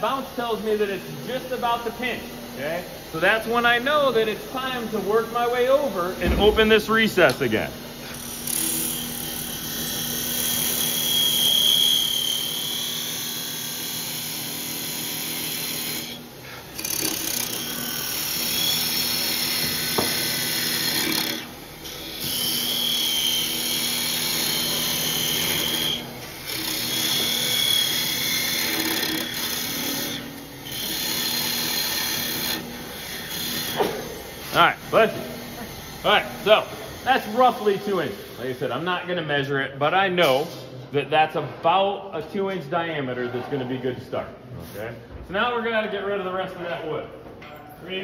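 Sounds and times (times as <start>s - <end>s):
lathe hum: 0.0s - 38.6s
hiss of tool cutting wood: 10.1s - 26.0s.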